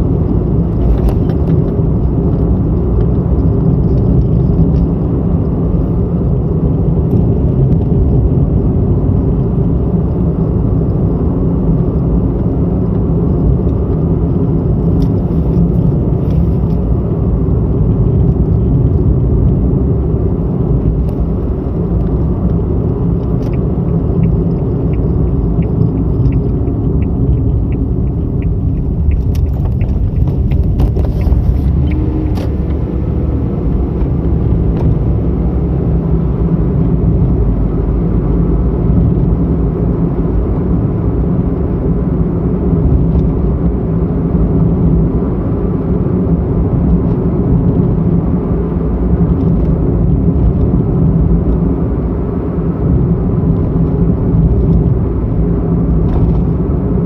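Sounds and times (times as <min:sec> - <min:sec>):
car engine and tyre rumble: 0:00.0 - 0:57.0
light regular ticking: 0:21.0 - 0:32.9.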